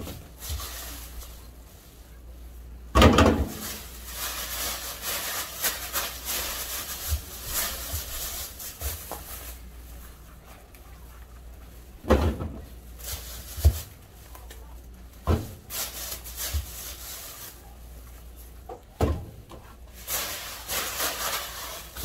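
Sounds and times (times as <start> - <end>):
plastic bags rustling: 0.0 - 18.9, 19.6 - 22.0
items knocking on a counter: 3.0 - 3.5, 12.0 - 12.7.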